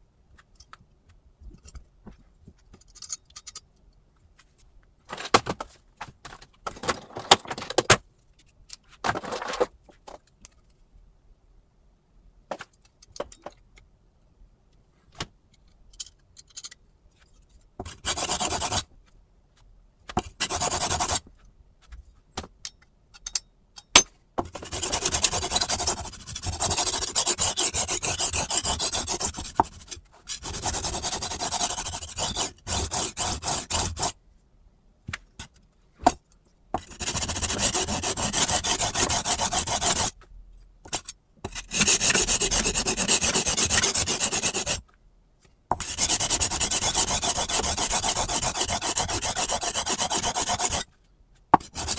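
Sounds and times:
knife scraping on sharpening rods: 40.9 - 44.8.

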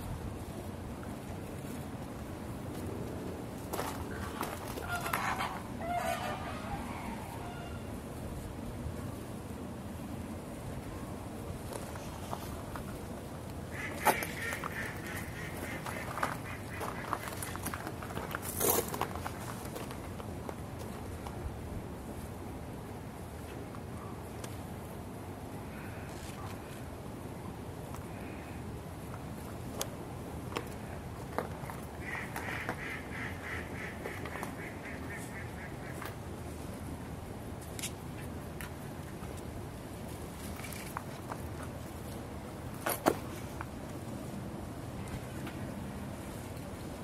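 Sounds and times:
outdoor background noise: 0.0 - 47.0
animal calls: 4.8 - 7.9.

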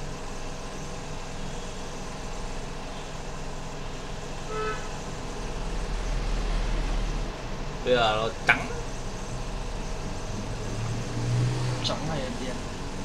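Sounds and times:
steady low hum: 0.0 - 13.0
short pitched toot: 4.5 - 5.0.

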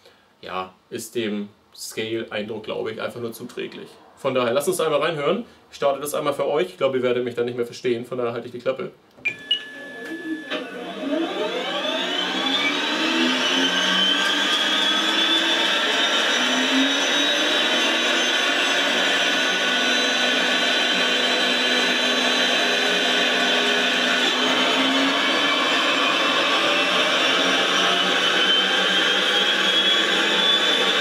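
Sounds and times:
turbine whine from loudspeaker: 9.5 - 21.4, 22.0 - 31.0.

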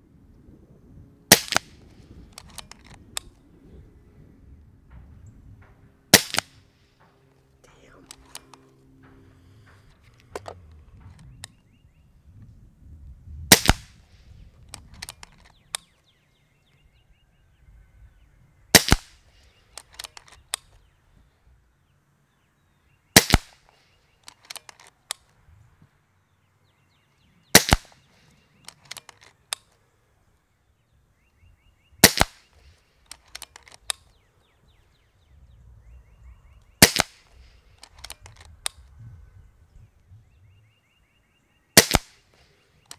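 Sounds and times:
air rifle shots: 1.3 - 3.3, 5.6 - 11.5, 13.4 - 15.8, 18.7 - 20.7, 23.2 - 24.9, 27.5 - 29.6, 32.0 - 34.1, 36.8 - 38.8, 41.8 - 42.9
light clicks: 7.1 - 11.6.

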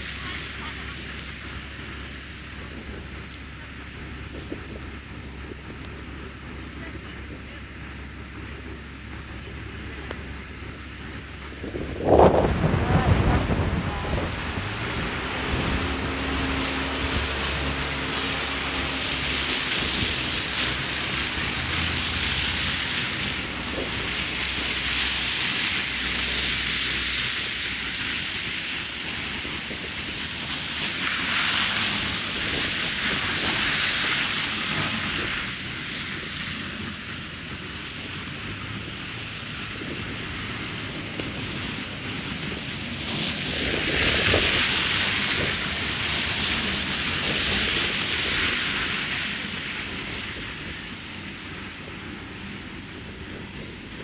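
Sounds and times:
tyres hissing through slush: 0.0 - 5.1, 12.0 - 53.7
backhoe engine running: 0.0 - 24.7.

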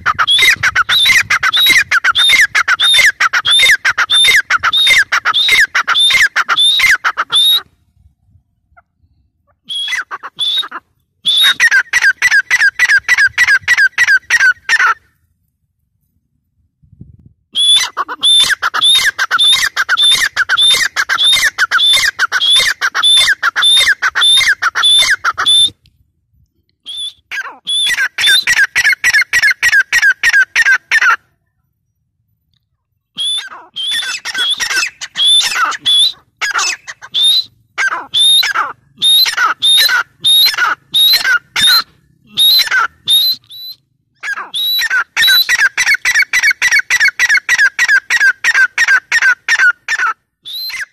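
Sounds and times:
bird calling ringing notes: 8.7 - 15.1, 17.5 - 25.8, 33.0 - 50.9.

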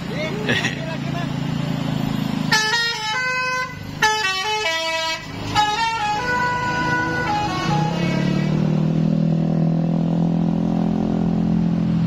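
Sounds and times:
bus engine low hum: 0.0 - 12.0
musical air horn playing a tune: 2.5 - 8.5.

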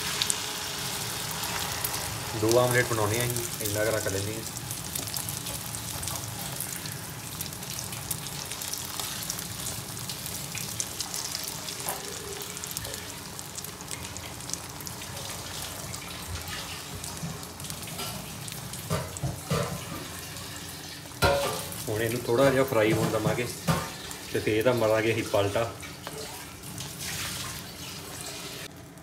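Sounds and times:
omelette sizzling in oil: 0.0 - 29.0.

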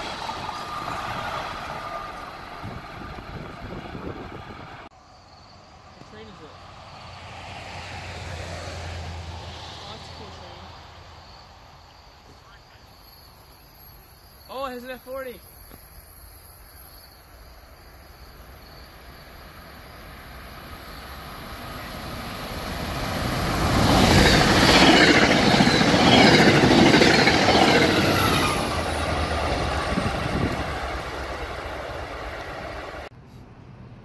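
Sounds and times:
train wheels clattering on rails: 22.9 - 33.1.

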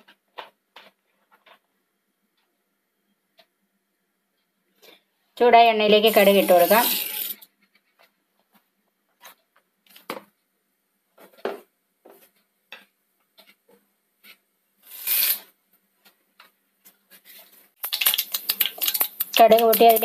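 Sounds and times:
seeds crackling in hot oil: 6.1 - 7.4, 14.8 - 15.5, 17.3 - 20.0.

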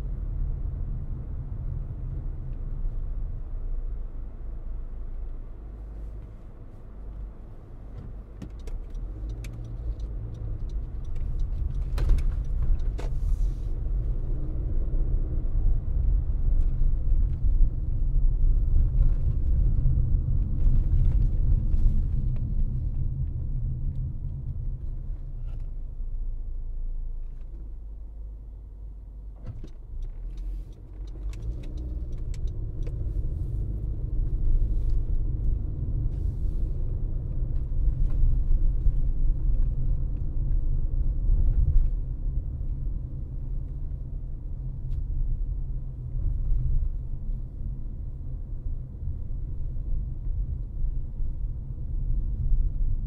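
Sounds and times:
car road and engine rumble: 0.0 - 53.0
faint clicks and rattles: 29.5 - 33.1.

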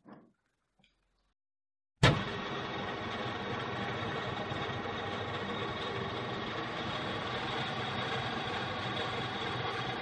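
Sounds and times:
metal lathe running: 2.2 - 10.0.

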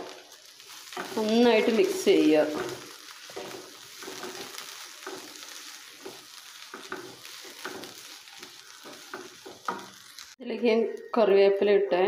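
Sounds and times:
onions sizzling in hot oil: 0.0 - 10.4
wooden spatula scraping a pan: 0.6 - 10.3.

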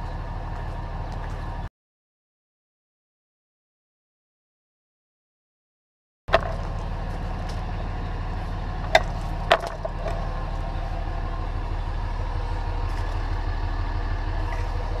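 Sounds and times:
diesel engine idling: 0.0 - 1.7, 6.3 - 15.0.

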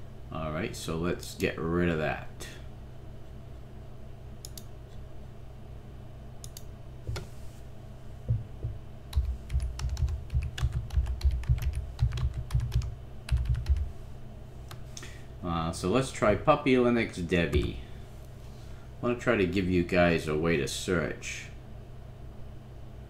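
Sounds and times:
typing on computer keyboard: 9.1 - 13.9.

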